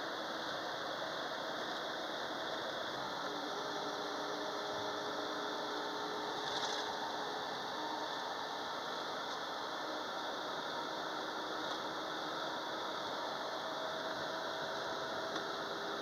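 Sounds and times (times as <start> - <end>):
bus road and engine noise: 0.0 - 16.0.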